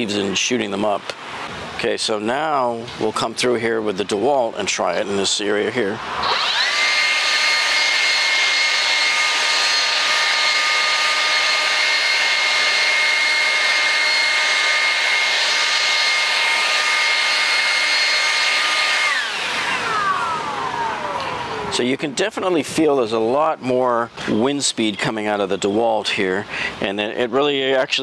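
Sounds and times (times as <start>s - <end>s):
leaf blower running: 6.2s - 22.6s.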